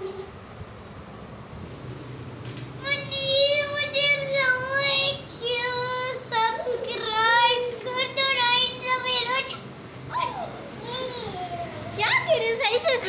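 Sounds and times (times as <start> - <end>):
boy singing playfully: 2.8 - 12.2.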